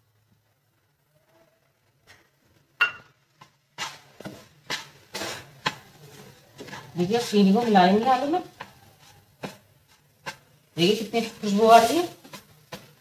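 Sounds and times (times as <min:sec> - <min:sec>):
spatula scraping a pan: 0:03.3 - 0:13.0.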